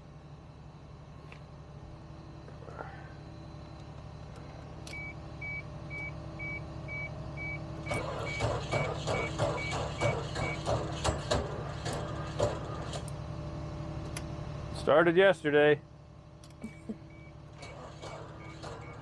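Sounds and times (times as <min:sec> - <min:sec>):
car warning chime beeping: 0:04.9 - 0:10.6.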